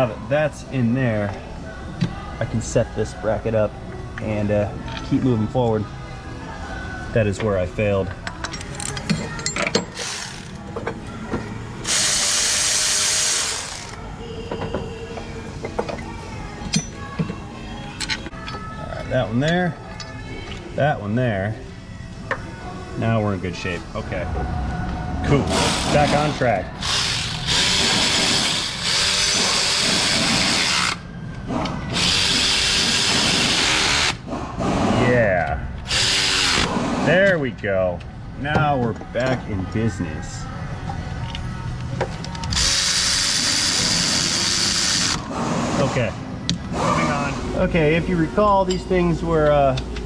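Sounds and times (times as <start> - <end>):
metal parts clicking and knocking: 8.2 - 11.0
electric ratchet running: 10.0 - 10.6, 11.8 - 14.0, 25.5 - 31.0, 31.9 - 34.2, 35.9 - 36.8, 42.5 - 45.2
power tool whirring: 11.8 - 14.0, 25.5 - 31.0, 35.8 - 36.8, 42.5 - 45.9.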